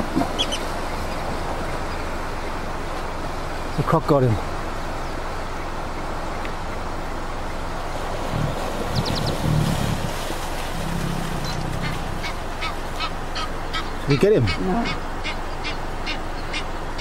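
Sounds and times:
bird calls: 0.0s - 4.0s, 8.3s - 17.0s
wind hissing on microphone: 7.7s - 12.5s.

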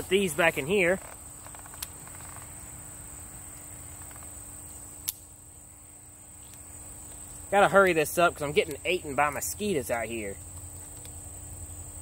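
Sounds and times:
high insect chorus: 0.0s - 12.0s.

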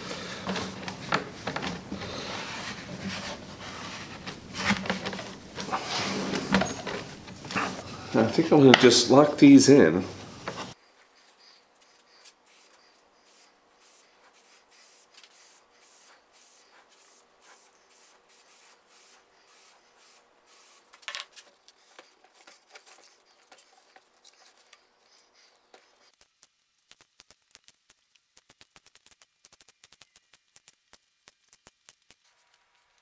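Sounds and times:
hands rubbing felt cloth: 0.0s - 8.4s.

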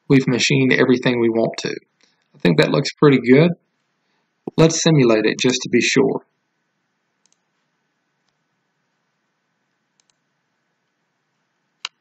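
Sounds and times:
computer mouse clicks: 7.2s - 7.5s, 10.0s - 10.2s.

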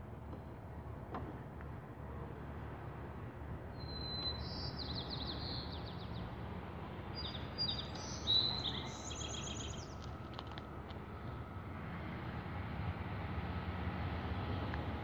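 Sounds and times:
songbird trilling: 7.2s - 10.0s.

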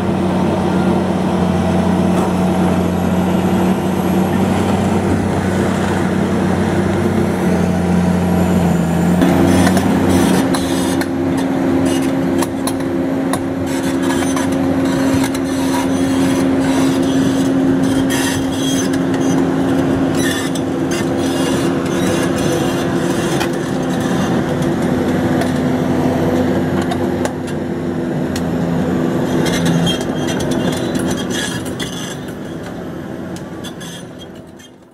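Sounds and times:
excavator engine running: 0.0s - 34.9s.

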